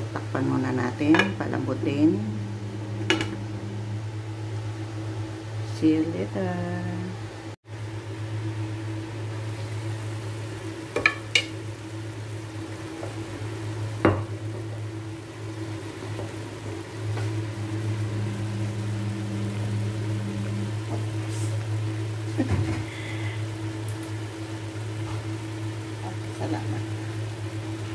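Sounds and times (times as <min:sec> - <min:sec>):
low hum: 0:00.0 - 0:27.9
food sizzling in a wok: 0:07.7 - 0:27.9.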